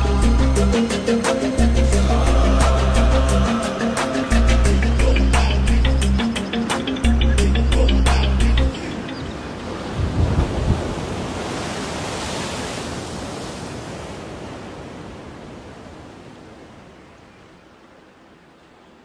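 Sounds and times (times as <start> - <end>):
ambient music: 0.0 - 9.2
ocean surf: 0.0 - 19.0.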